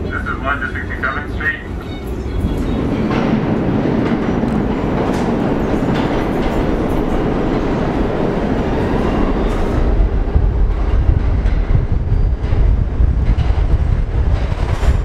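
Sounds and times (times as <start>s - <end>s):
subway train rumbling on rails: 0.0s - 15.0s
wheels clicking over rail joints: 2.6s - 8.6s.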